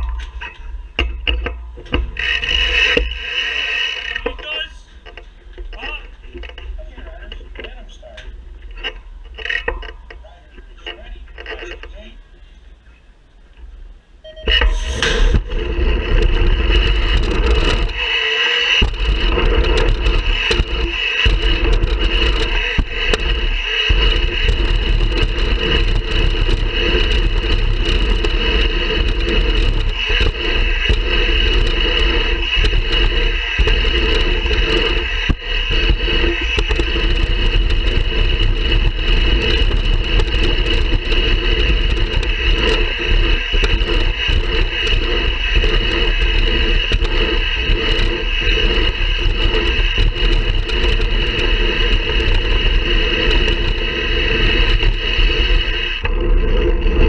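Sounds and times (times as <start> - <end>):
bike tyres rumbling on track: 0.0 - 57.0
wind on microphone: 14.5 - 57.0.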